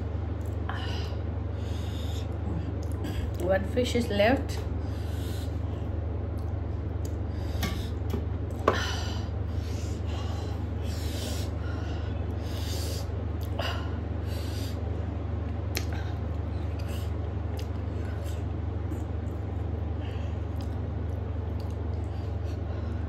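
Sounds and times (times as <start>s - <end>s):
steady low hum: 0.0s - 23.0s
chewing and lip-smacking: 16.7s - 17.9s, 20.5s - 22.1s.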